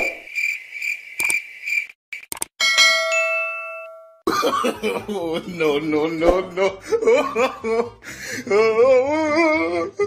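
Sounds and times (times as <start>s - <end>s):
crickets chirping: 0.0s - 2.3s
clicks: 2.2s - 2.5s
bright bell chime: 2.6s - 4.2s.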